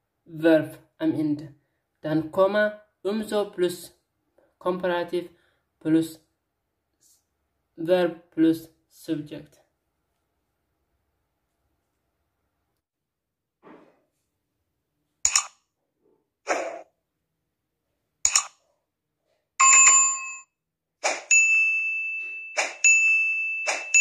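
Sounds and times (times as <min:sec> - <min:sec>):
chime: 0:21.3 - 0:24.0
high bell-like ring: 0:21.3 - 0:24.0.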